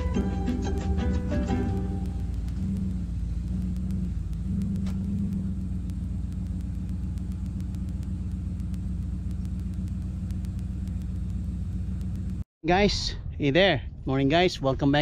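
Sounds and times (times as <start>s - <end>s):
vehicle engine idling: 0.0s - 12.4s.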